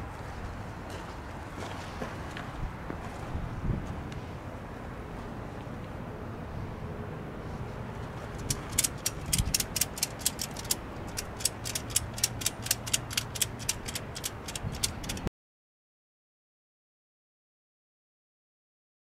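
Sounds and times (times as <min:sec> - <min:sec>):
ratchet jack clicking: 0:08.4 - 0:15.3.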